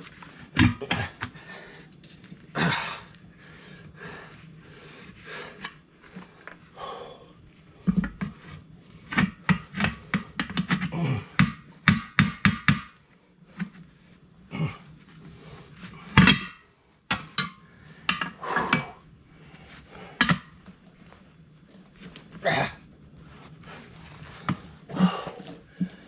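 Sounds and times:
tire irons clanking on metal rim: 0:15.8 - 0:19.0, 0:20.1 - 0:21.0.

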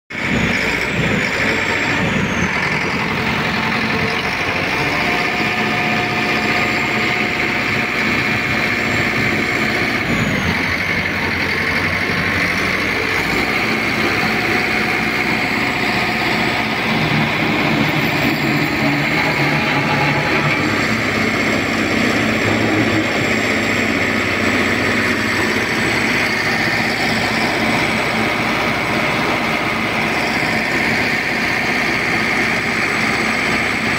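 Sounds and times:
diesel engine running: 0:00.1 - 0:33.9.

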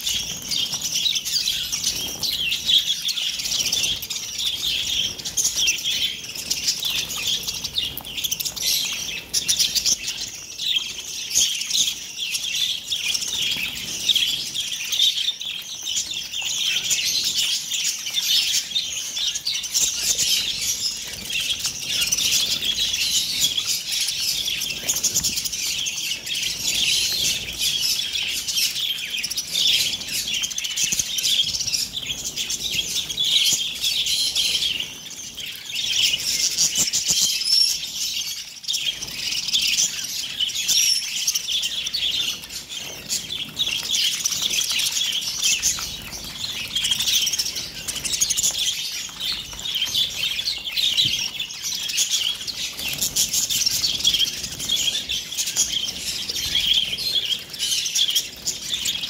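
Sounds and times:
wings fluttering: 0:00.0 - 0:10.4, 0:19.7 - 0:33.6, 0:42.5 - 0:59.0
budgerigars chattering and chirping: 0:00.0 - 0:59.0.

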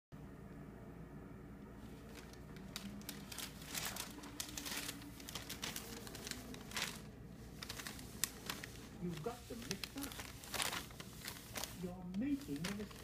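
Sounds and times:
plastic bag crinkling: 0:02.0 - 0:13.0.

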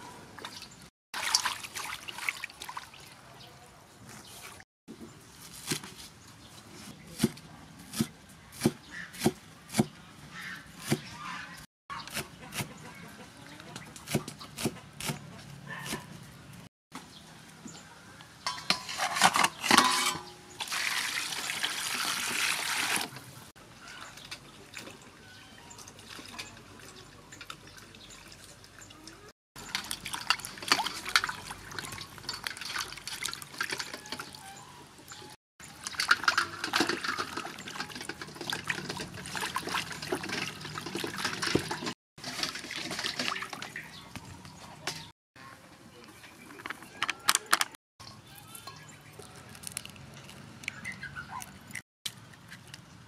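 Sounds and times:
water splashing in metal bowl: 0:01.2 - 0:03.2, 0:19.8 - 0:23.2, 0:25.8 - 0:34.4, 0:35.6 - 0:44.1.

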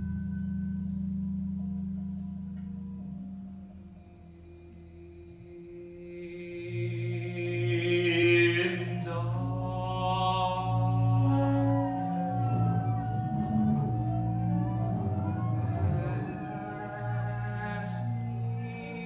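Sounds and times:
bowed strings: 0:00.0 - 0:19.0
saxophone: 0:04.0 - 0:19.0
low bass note: 0:07.4 - 0:19.0.

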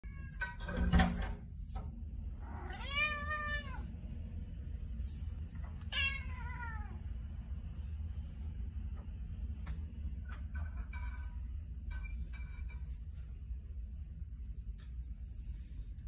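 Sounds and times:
low steady hum: 0:00.0 - 0:16.0
cat meowing: 0:02.4 - 0:03.9, 0:05.9 - 0:07.0.

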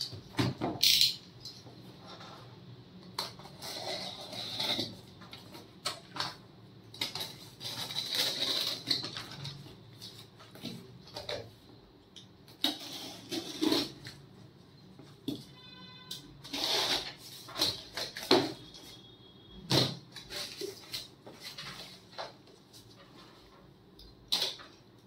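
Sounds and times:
tape and paper tearing: 0:07.1 - 0:09.4, 0:12.6 - 0:14.2, 0:16.4 - 0:18.1.

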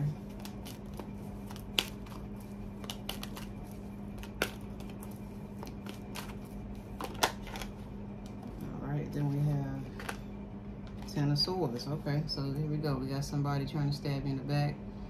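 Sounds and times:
steady low hum: 0:00.0 - 0:15.0
cards being shuffled: 0:00.2 - 0:08.5.

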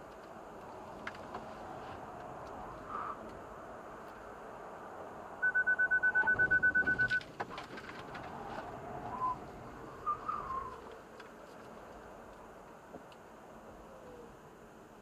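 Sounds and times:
road and tyre noise: 0:00.0 - 0:15.0
high electronic warning beeps: 0:05.4 - 0:07.2.

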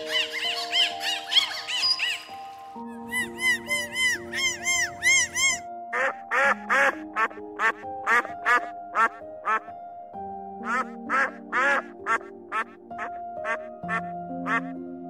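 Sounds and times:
soft background music: 0:00.0 - 0:15.0
geese honking: 0:03.1 - 0:09.7, 0:10.6 - 0:14.7.

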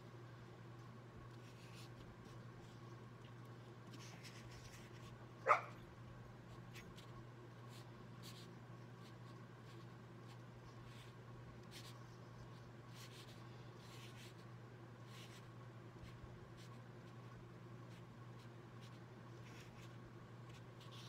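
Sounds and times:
steady low hum: 0:00.0 - 0:21.0
pen scratching on paper: 0:12.9 - 0:14.4, 0:15.1 - 0:17.2, 0:17.9 - 0:21.0.

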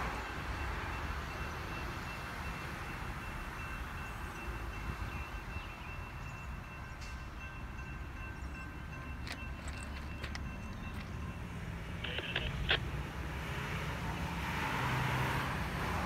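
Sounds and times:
crossing signal bell ringing: 0:00.0 - 0:12.7
distant train rumble: 0:00.0 - 0:14.4
sharp clicks: 0:12.0 - 0:12.9.

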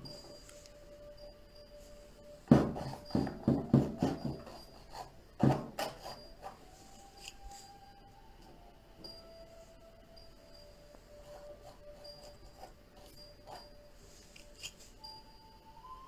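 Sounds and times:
faint background music: 0:00.0 - 0:16.0
palette knife scraping paint: 0:02.5 - 0:07.8, 0:11.1 - 0:15.0.

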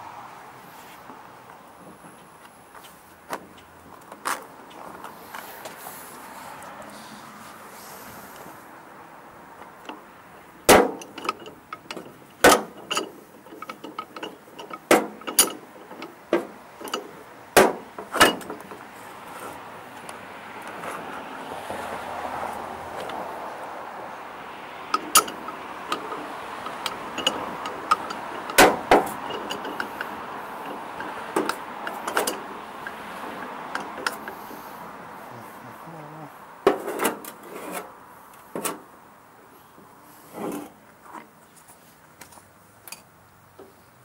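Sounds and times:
hammer clanking on metal: 0:10.7 - 0:18.6, 0:24.9 - 0:32.4.

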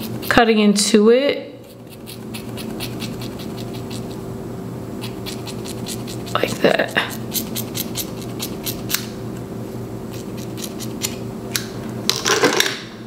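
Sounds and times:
scissors snipping hair: 0:01.6 - 0:04.2, 0:05.0 - 0:09.1, 0:10.1 - 0:11.2.

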